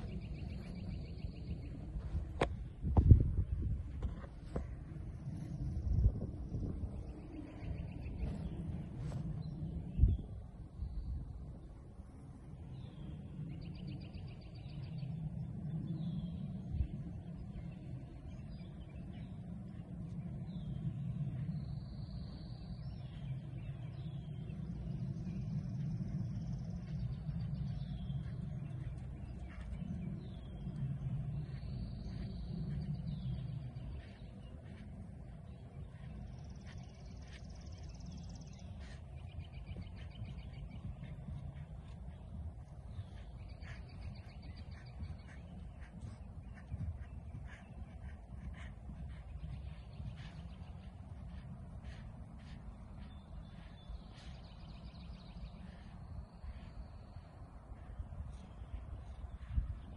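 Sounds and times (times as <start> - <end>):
birds calling: 0.0 - 59.9
wind rumble on microphone: 0.0 - 59.9.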